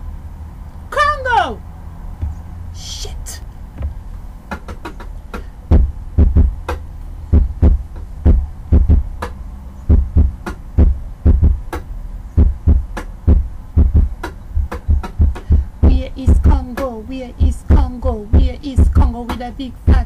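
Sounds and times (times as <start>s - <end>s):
low steady hum: 0.0s - 20.0s
deep drum beat: 2.2s - 2.8s, 3.6s - 9.3s, 9.9s - 11.8s, 12.4s - 16.6s.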